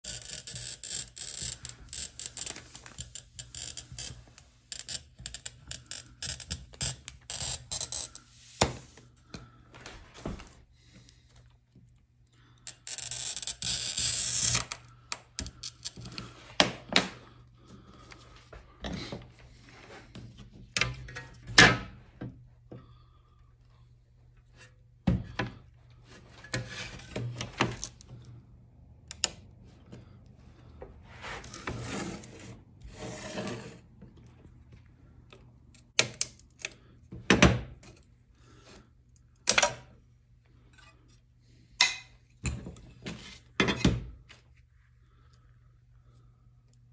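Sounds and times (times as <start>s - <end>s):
glass cutter scoring glass: 0.0s - 8.2s, 12.8s - 14.8s.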